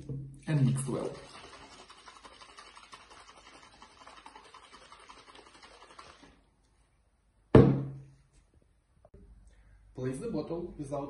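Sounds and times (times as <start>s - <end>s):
bottle shaking rattle: 0.5s - 6.4s.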